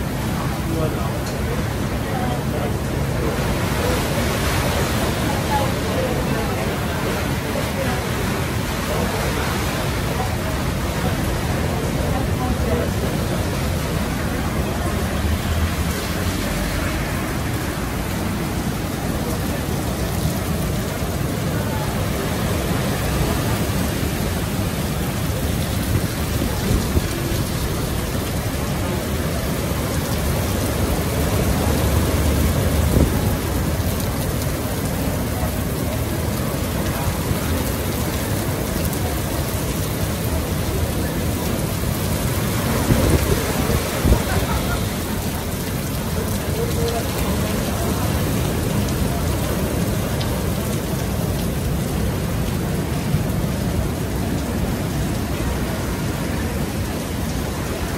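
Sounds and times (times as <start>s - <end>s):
storm wind and surf: 0.0s - 46.8s
heavy rain falling: 0.0s - 57.9s
wind buffeting on microphone: 42.5s - 44.4s.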